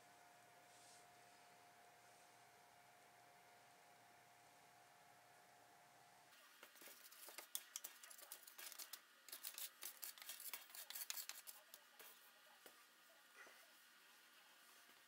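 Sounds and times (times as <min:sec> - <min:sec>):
spatula scraping potatoes on pan: 0:06.8 - 0:11.7.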